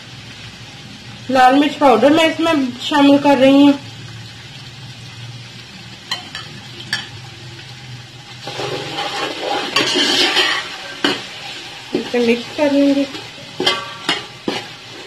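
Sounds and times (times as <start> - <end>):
chickpeas stirred in sizzling oil: 0.0 - 15.0
spoon knocking on metal pot: 13.6 - 14.6.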